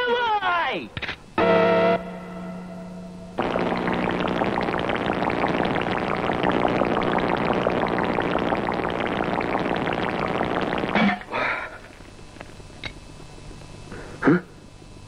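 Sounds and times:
crackling fizz sound effect: 0:01.4 - 0:11.3.

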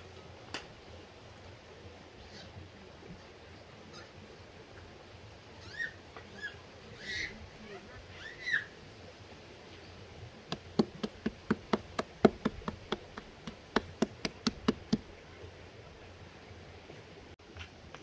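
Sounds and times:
small animal squeaking: 0:05.6 - 0:08.7
knife chopping on cutting board: 0:10.5 - 0:15.0.

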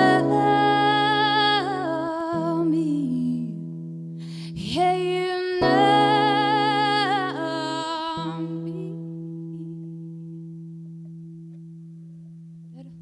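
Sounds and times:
woman singing with vibrato: 0:00.0 - 0:03.7, 0:04.4 - 0:10.0
acoustic guitar chord ringing: 0:00.0 - 0:13.0.

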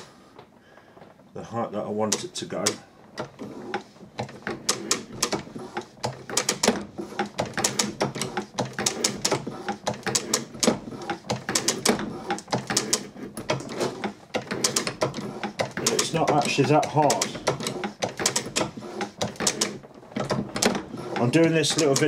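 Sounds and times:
hand shaper cutting steel: 0:02.1 - 0:19.8, 0:20.8 - 0:22.0
metallic clicks and knocks: 0:06.0 - 0:22.0.

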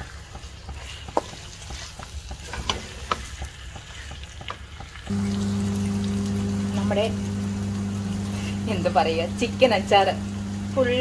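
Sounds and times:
spoon scraping a pan: 0:00.0 - 0:04.4
low hum: 0:05.1 - 0:11.0.

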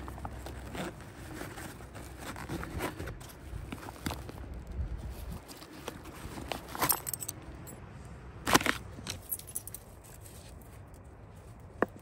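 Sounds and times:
nylon pouch rustling and clicking: 0:00.0 - 0:07.4.

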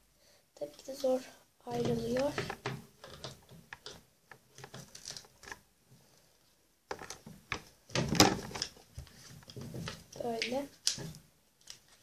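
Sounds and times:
plastic doll handling rustles and clicks: 0:01.7 - 0:05.7, 0:06.9 - 0:12.0.

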